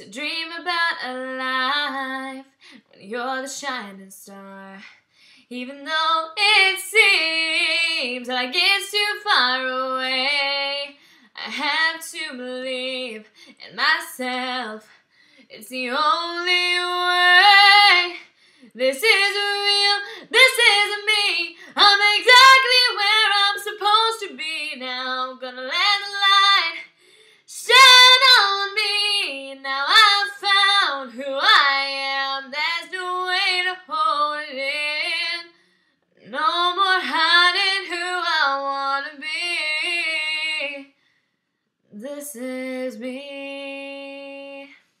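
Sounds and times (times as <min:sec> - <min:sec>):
woman singing unaccompanied: 0:05.5 - 0:14.9, 0:15.5 - 0:26.9, 0:27.5 - 0:35.5, 0:36.2 - 0:40.9.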